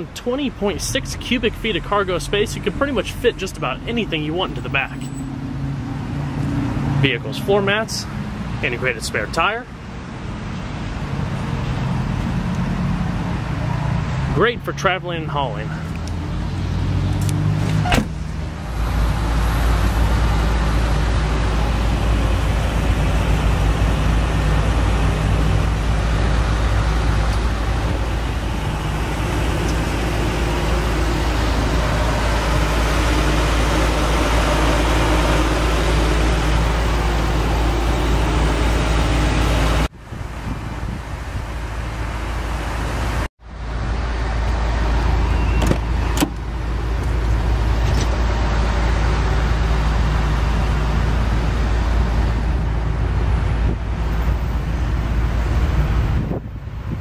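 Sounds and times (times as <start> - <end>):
motor vehicle hum: 0.0 - 57.0
wind rumbling on microphone: 39.9 - 42.1, 55.4 - 57.0.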